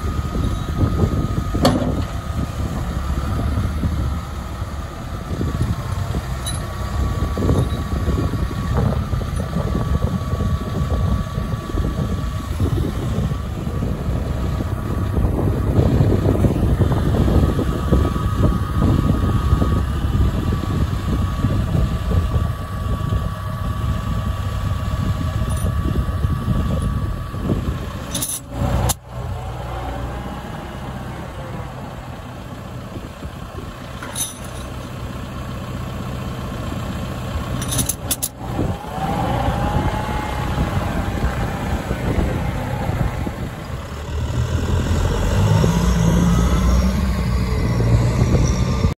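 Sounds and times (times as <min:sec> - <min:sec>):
steady high whine: 0:00.0 - 0:35.5, 0:36.4 - 0:45.3
tractor diesel engine running: 0:00.0 - 0:49.0.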